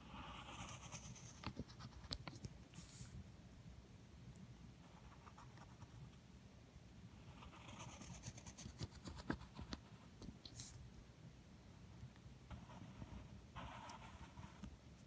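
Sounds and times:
pencil scratching on paper: 0.0s - 2.2s, 7.3s - 10.0s, 12.5s - 14.7s.

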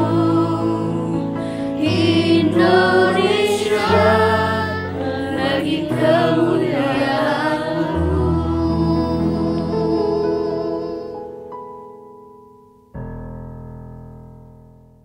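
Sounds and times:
children's choir singing: 0.0s - 11.5s.

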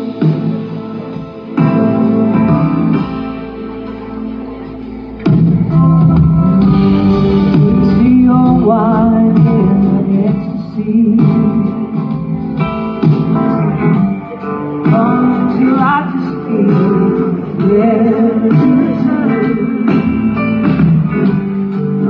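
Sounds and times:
live rock band playing: 0.0s - 22.0s
wavering guitar melody: 0.0s - 22.0s.

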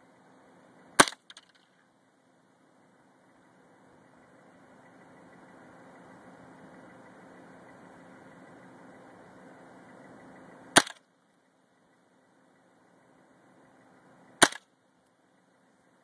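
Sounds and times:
low hum and hiss: 0.0s - 16.0s
rifle shot: 1.0s - 1.4s, 10.8s - 11.0s, 14.4s - 14.7s.

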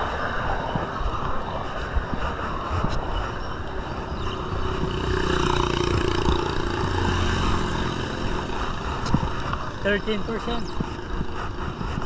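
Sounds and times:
wind rushing over microphone: 0.0s - 12.0s
motorcycle engine passing: 3.8s - 11.7s.

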